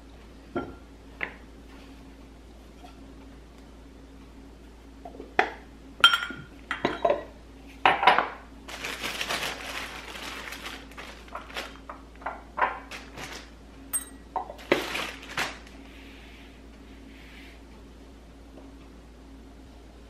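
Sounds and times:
glass jars clinking: 0:06.0 - 0:07.3, 0:13.9 - 0:14.6
rustling: 0:08.7 - 0:11.9, 0:12.9 - 0:13.6, 0:14.6 - 0:15.8.

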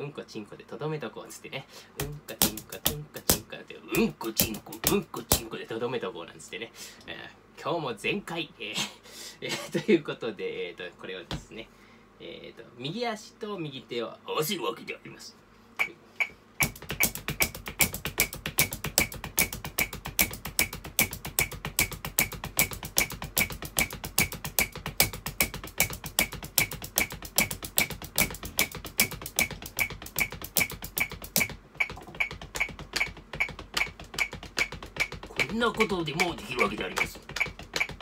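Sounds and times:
drumsticks on practice pad: 0:02.0 - 0:05.5, 0:15.8 - 0:38.0
foot tapping the floor: 0:02.0 - 0:05.6, 0:11.3 - 0:11.5, 0:15.8 - 0:38.0.

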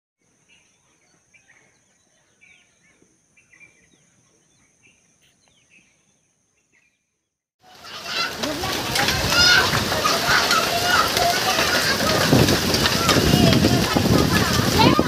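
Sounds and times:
birds chirping: 0:00.2 - 0:15.0
heavy rain: 0:07.6 - 0:15.0.

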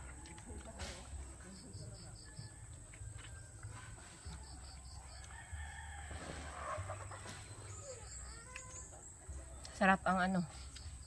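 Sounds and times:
rooster crowing: 0:05.0 - 0:07.1.

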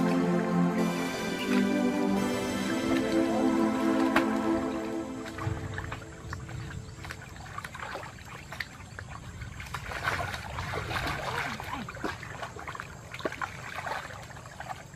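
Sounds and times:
steady low rumble: 0:00.0 - 0:07.8
water dripping: 0:00.0 - 0:14.9
hands splashing in muddy water: 0:05.2 - 0:14.9.

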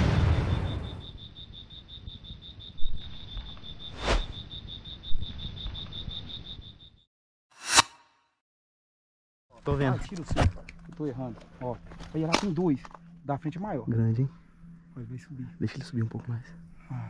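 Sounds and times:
boom: 0:00.0 - 0:01.2
insect trilling: 0:00.4 - 0:07.0.

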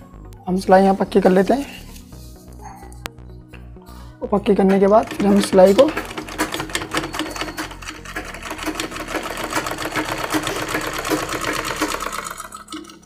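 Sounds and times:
sewing machine stitching: 0:04.7 - 0:13.0.

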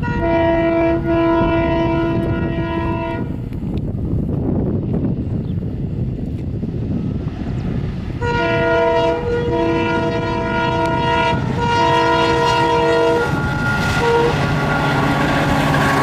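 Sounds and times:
locomotive air horn blasts: 0:00.0 - 0:03.4, 0:08.2 - 0:16.0
wheels rattling on rails: 0:03.1 - 0:16.0.

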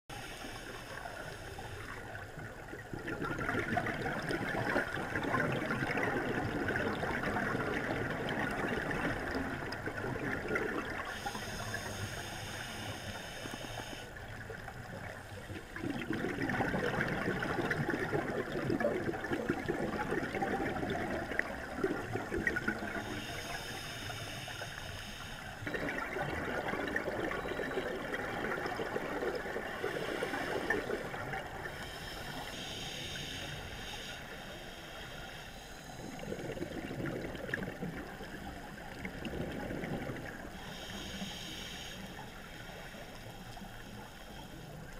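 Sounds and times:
diver's air bubbling underwater: 0:02.9 - 0:11.2, 0:15.7 - 0:23.1, 0:25.6 - 0:31.7, 0:36.2 - 0:40.4.

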